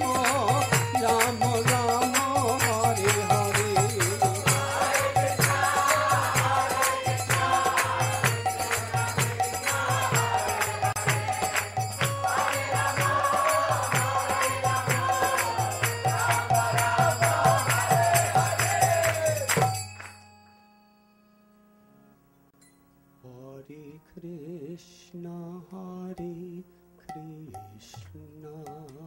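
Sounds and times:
group singing devotional chant: 0:00.0 - 0:19.6
drum beat: 0:00.0 - 0:19.7
jingling hand cymbals: 0:00.0 - 0:20.8.

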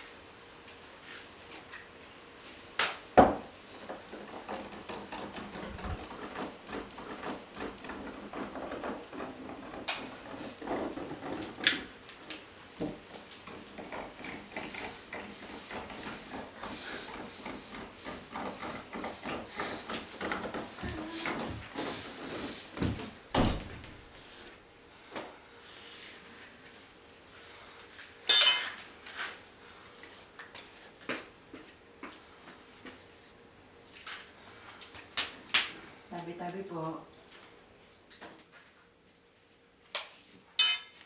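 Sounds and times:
feet shuffling and rustling: 0:14.9 - 0:24.5.

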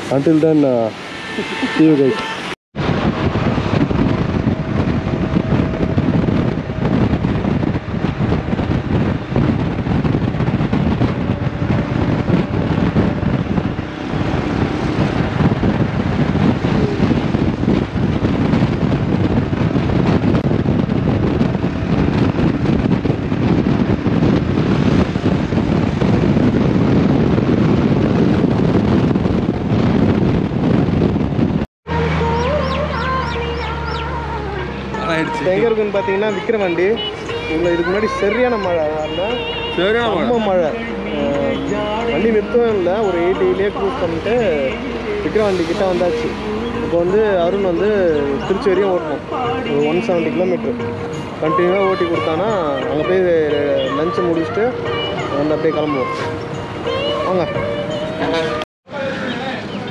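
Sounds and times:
road noise: 0:00.0 - 0:59.9
wind rushing over microphone: 0:00.0 - 0:59.9
motorcycle engine: 0:03.1 - 0:30.5.

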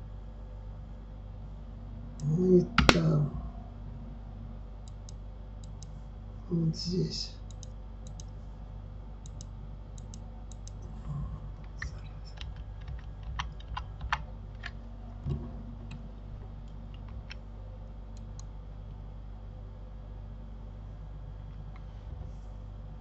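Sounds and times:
steady low hum: 0:00.0 - 0:23.0
keyboard and mouse clicks: 0:07.5 - 0:08.3, 0:09.2 - 0:10.8, 0:11.6 - 0:14.8, 0:16.6 - 0:17.4.

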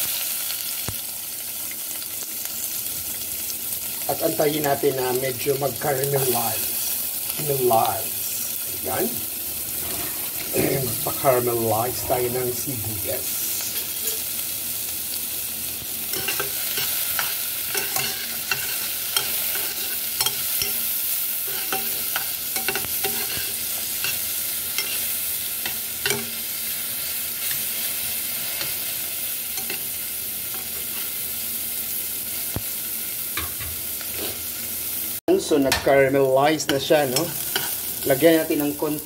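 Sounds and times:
onions sizzling in oil: 0:00.0 - 0:39.0
metal spoon scraping a pot: 0:16.1 - 0:26.3.

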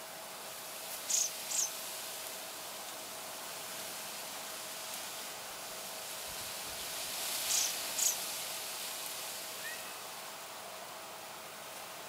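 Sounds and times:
insect chirring: 0:01.1 - 0:01.7, 0:07.4 - 0:08.2.

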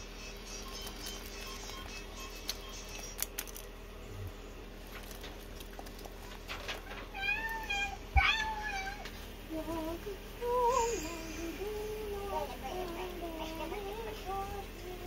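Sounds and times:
meow-like calls: 0:07.0 - 0:09.1.

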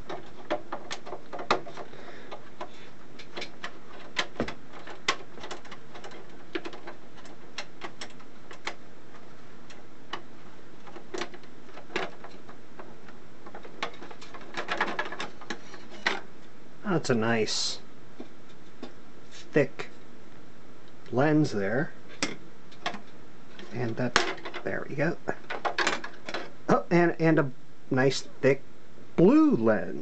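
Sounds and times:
plastic parts handled: 0:00.0 - 0:16.6, 0:22.1 - 0:26.6.

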